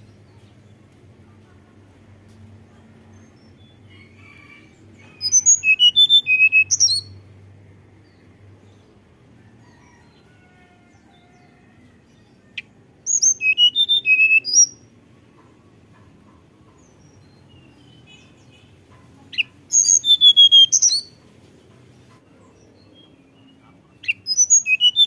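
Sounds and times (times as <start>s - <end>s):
bird singing whistled notes: 5.1s - 7.2s, 12.6s - 14.8s, 19.4s - 21.2s, 24.0s - 25.0s.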